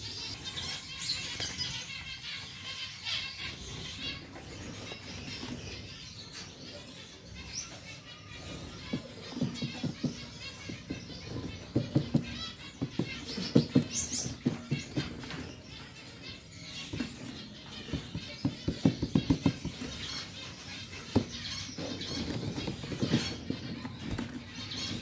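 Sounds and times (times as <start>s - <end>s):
birds tapping on perches: 8.4s - 25.0s.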